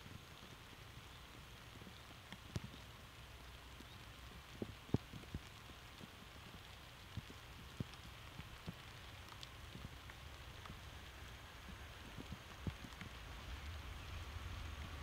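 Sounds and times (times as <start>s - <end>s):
faint low rumble: 0.0s - 15.0s
light rain falling: 0.0s - 15.0s.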